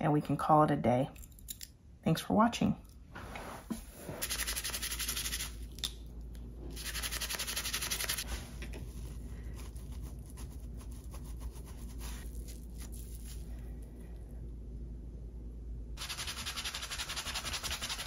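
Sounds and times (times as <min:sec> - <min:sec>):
sponge scrubbing a knife: 0:03.9 - 0:05.6, 0:06.8 - 0:13.4, 0:16.0 - 0:18.0.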